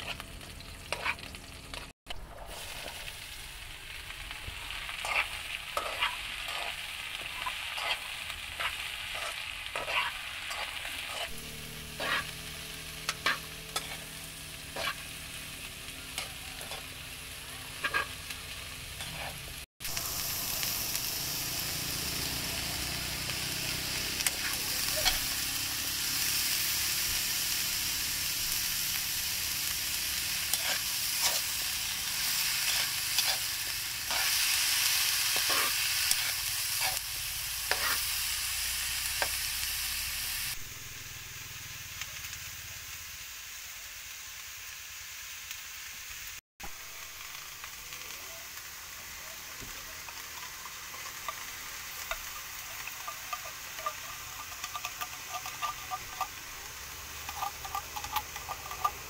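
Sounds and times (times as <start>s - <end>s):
beans sizzling in hot oil: 0.0s - 59.0s
metal ladle scraping pan: 4.9s - 12.4s, 13.0s - 14.1s, 14.7s - 15.1s, 17.8s - 18.2s, 50.3s - 56.6s, 57.2s - 59.0s.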